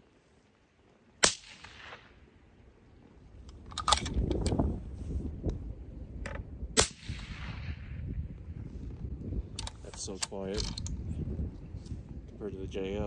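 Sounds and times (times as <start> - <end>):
suppressed rifle shot: 1.2 - 2.2, 6.8 - 8.2
rifle bolt clicking and rattling: 3.4 - 4.6, 9.5 - 11.0.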